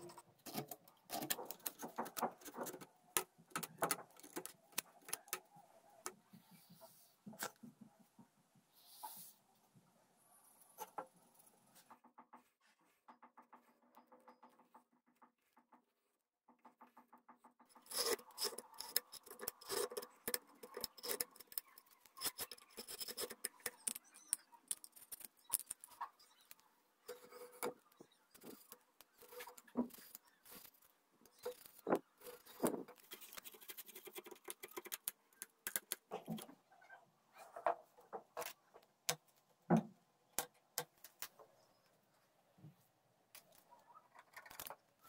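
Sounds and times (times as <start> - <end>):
knife scraping bamboo: 17.8 - 36.4.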